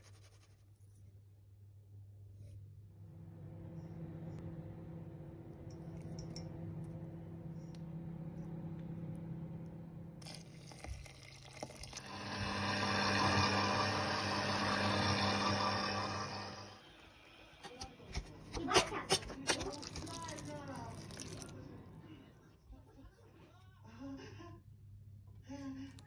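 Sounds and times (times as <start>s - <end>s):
low steady hum: 0.8s - 23.1s
milk pouring: 10.2s - 17.1s, 19.1s - 21.8s
stand mixer motor running: 11.9s - 17.3s.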